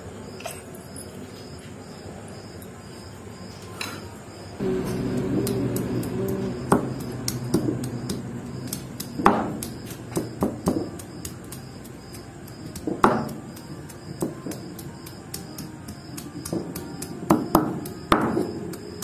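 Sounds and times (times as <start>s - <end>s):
stone knocking on stone: 12.8s - 13.4s.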